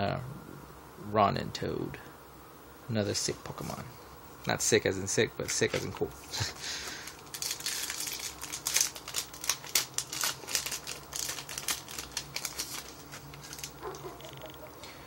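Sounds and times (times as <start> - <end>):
foil wrapper crinkling: 5.5 - 14.7.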